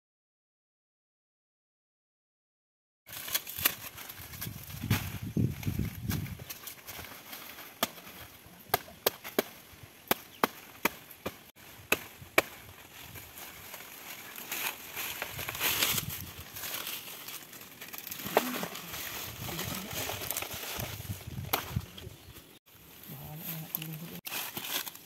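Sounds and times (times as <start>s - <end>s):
leaves rustling: 3.1s - 25.0s
machete chopping plant: 7.7s - 12.8s, 17.9s - 18.9s, 20.0s - 21.8s.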